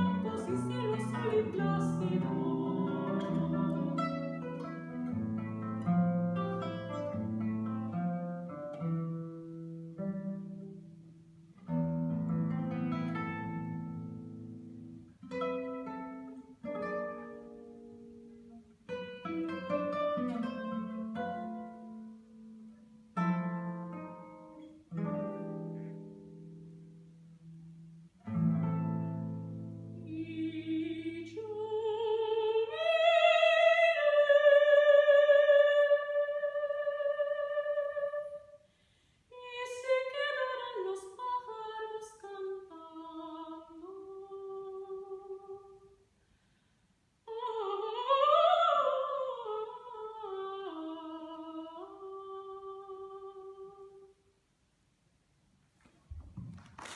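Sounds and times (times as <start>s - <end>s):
soprano singing with vibrato: 0.0s - 5.0s, 29.9s - 38.6s, 39.3s - 46.0s, 47.3s - 54.2s
classical guitar notes: 0.0s - 38.4s
singer breathing: 38.6s - 39.3s, 46.2s - 47.0s.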